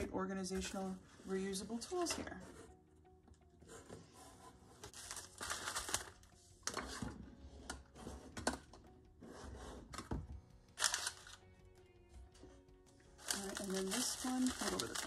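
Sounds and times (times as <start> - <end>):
kraft paper rustling and crinkling: 3.8 - 8.7, 10.8 - 11.4, 13.2 - 15.0.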